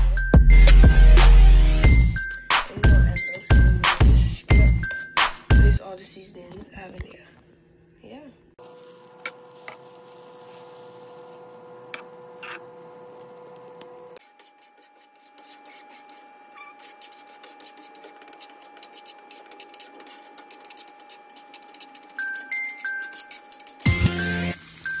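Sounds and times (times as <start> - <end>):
eggs sizzling in frying pan: 8.6 - 14.2, 18.0 - 25.0.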